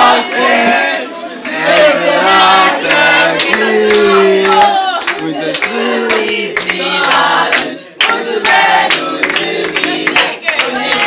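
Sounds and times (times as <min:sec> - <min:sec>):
group singing birthday song: 0:00.0 - 0:11.0
hands clapping: 0:00.7 - 0:11.0.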